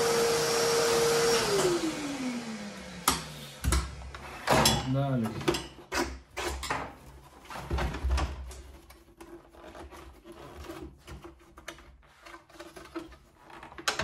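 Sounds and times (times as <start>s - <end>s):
plastic clicks and scraping: 8.2s - 14.0s.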